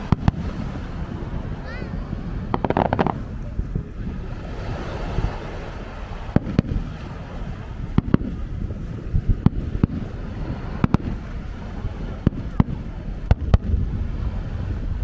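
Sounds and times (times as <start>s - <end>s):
fireworks bursting: 0.0s - 0.7s, 2.4s - 3.5s, 6.2s - 13.8s
steady low rumble: 0.0s - 15.0s.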